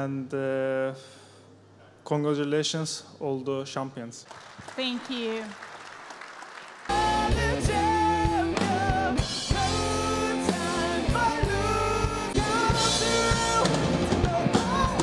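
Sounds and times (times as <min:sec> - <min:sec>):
drum kit: 0:06.9 - 0:15.0
guitar: 0:06.9 - 0:15.0
person singing: 0:06.9 - 0:15.0.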